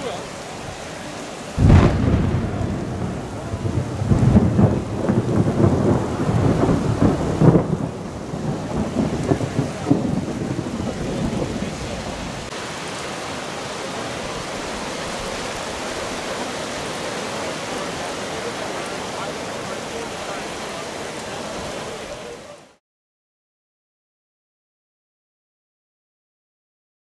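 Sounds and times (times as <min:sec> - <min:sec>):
hail: 0:00.0 - 0:22.6
heavy rain: 0:00.0 - 0:22.8
thunder rumbling: 0:01.6 - 0:12.5.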